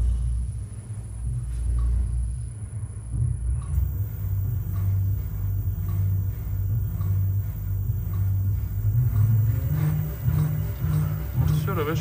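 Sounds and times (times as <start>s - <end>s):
test bench low hum: 0.0s - 12.0s
faint ticking: 3.6s - 12.0s.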